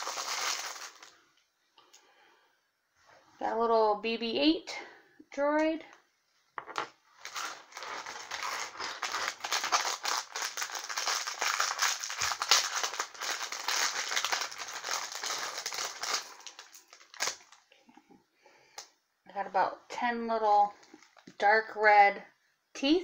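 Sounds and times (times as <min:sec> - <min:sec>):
plastic bag crackling: 0:00.0 - 0:01.2, 0:07.1 - 0:17.7.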